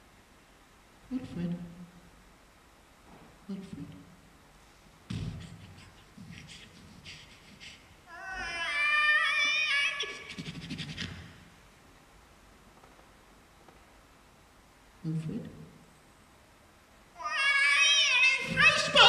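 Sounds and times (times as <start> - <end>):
man squealing: 8.1 - 11.2.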